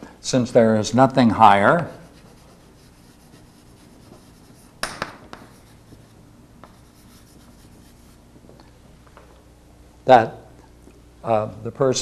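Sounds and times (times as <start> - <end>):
low steady hiss: 0.0 - 12.0
chalk tapping and scraping on blackboard: 1.8 - 8.2.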